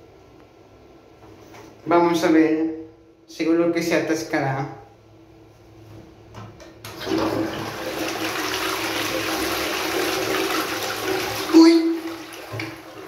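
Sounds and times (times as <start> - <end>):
toilet flushing: 6.8 - 13.0.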